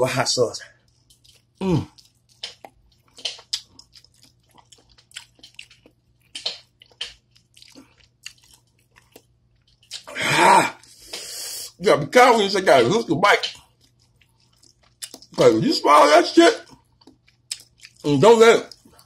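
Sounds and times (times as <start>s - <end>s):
wet chewing smacks: 0.8s - 10.1s, 13.4s - 15.5s, 16.6s - 18.1s
loud breathy sound: 10.9s - 11.8s.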